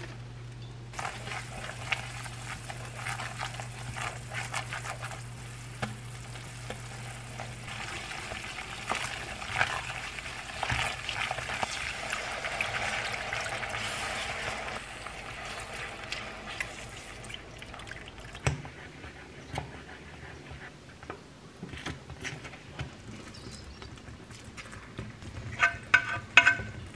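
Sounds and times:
roux sizzling in a pan: 0.9 - 17.8
utensil scraping a pan: 25.6 - 26.8.

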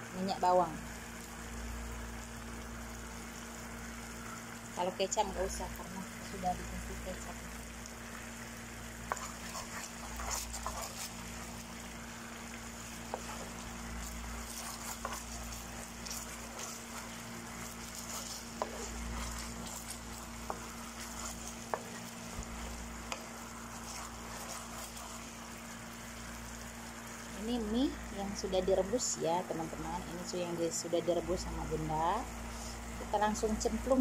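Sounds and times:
sauce bubbling and sizzling: 0.0 - 34.0
wooden spatula stirring: 8.8 - 26.0.

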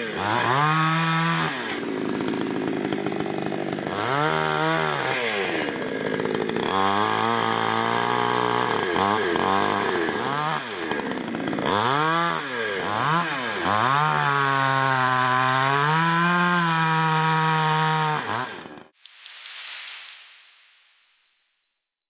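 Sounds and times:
chainsaw revving and cutting log: 0.0 - 19.0.

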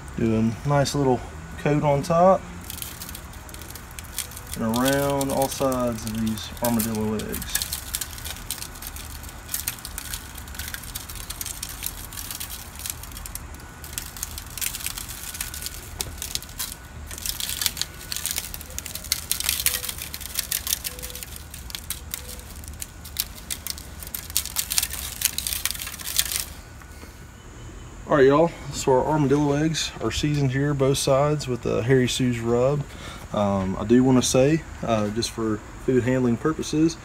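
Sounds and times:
shaker bottle granules rattling: 2.6 - 26.6.

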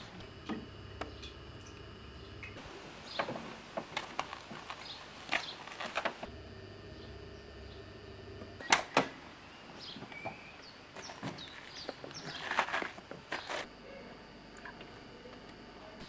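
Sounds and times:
rustling and small knocks: 3.1 - 6.3.

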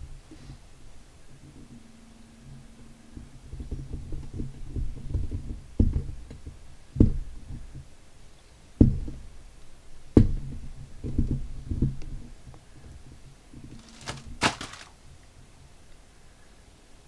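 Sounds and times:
handling knocks and bumps: 13.7 - 15.0
sharp thuds: 13.8 - 15.0.

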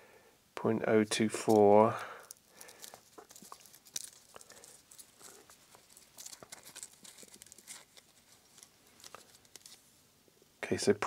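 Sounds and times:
hands handling small metal parts: 1.2 - 9.8.

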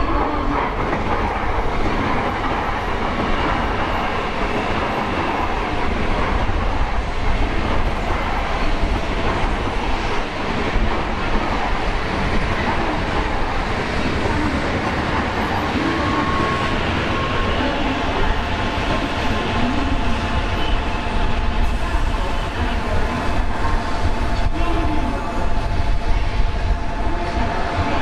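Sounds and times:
train wheels on rails: 0.0 - 28.0.

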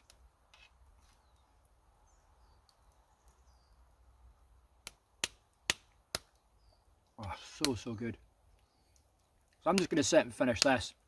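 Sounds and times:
faint distant bird chirps: 0.5 - 4.6, 6.3 - 9.6.

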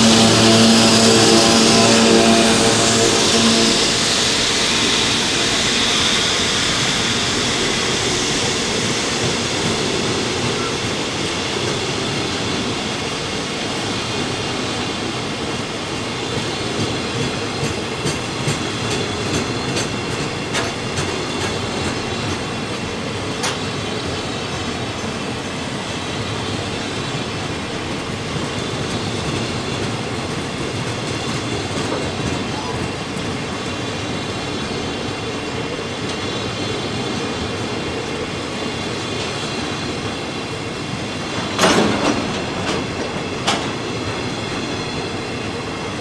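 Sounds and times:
high wheel squeal: 0.0 - 9.6
freight train wheels rumbling: 0.0 - 46.0
clickety-clack over rail joints: 8.4 - 46.0.

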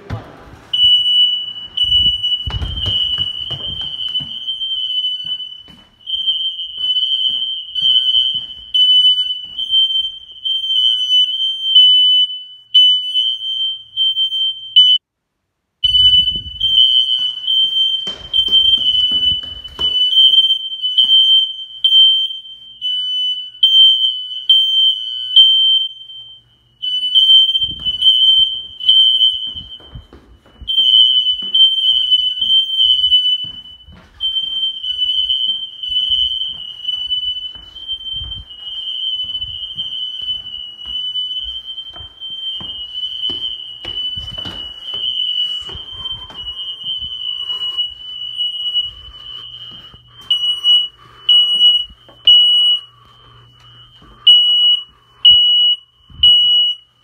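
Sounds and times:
smoke alarms beeping: 0.0 - 15.0, 15.8 - 57.0
footsteps on wooden stairs: 1.7 - 6.0, 6.6 - 9.7, 18.0 - 20.3, 27.6 - 50.4.

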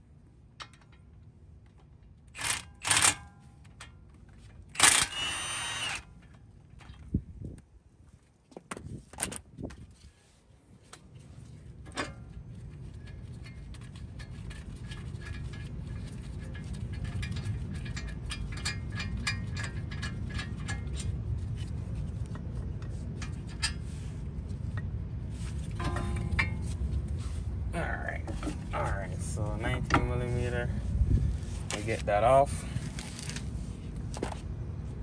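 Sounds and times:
low rumble: 19.9 - 35.0.

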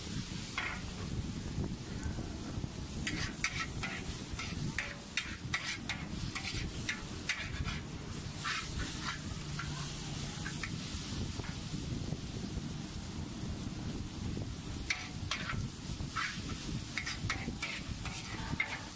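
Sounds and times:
food sizzling: 0.0 - 18.9
metal spatula scraping a wok: 0.2 - 1.1, 2.9 - 11.6, 14.8 - 18.9.

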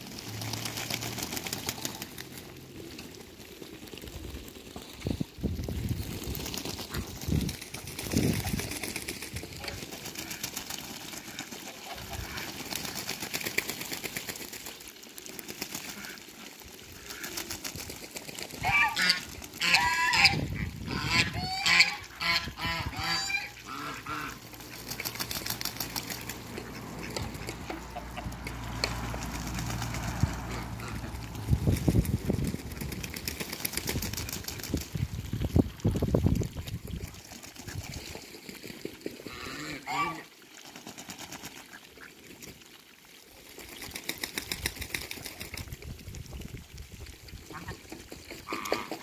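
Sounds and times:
birds splashing in water: 0.0 - 49.0
geese honking: 18.6 - 24.6, 39.3 - 40.3.

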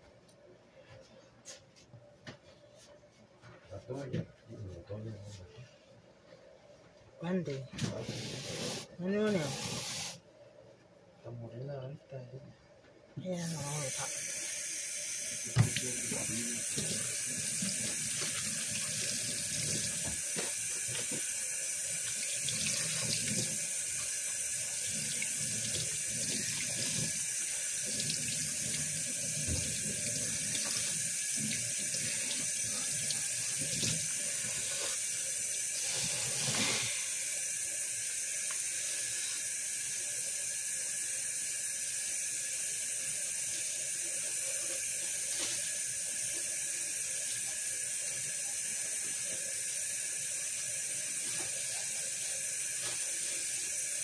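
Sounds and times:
tap water running into sink: 13.5 - 34.7.

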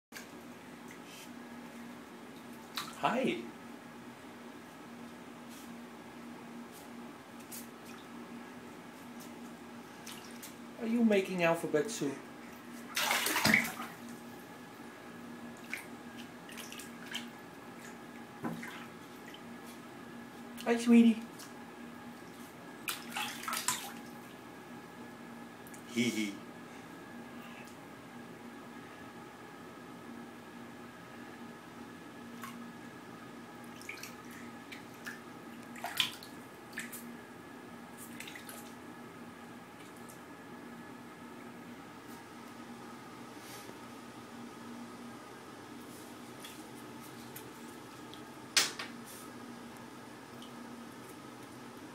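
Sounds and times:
steady low hum: 0.2 - 51.9
bathwater splashing: 10.0 - 10.5, 12.8 - 14.2, 15.6 - 19.4, 22.8 - 24.2, 33.7 - 37.1, 38.0 - 38.8.

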